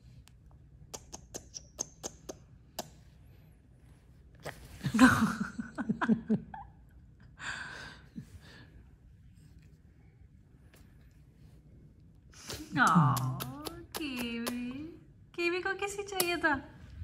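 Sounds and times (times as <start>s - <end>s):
squeaky kissing smacks: 0.9s - 3.0s.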